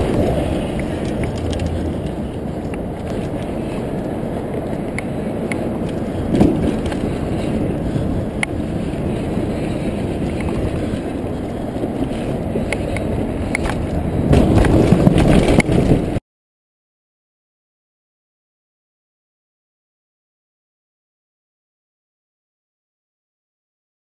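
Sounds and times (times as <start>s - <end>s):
bike clicks and rattles: 0.0s - 16.2s
bike rolling over wooden ramp: 0.0s - 16.2s
bike tyres rumbling on dirt: 0.0s - 16.2s.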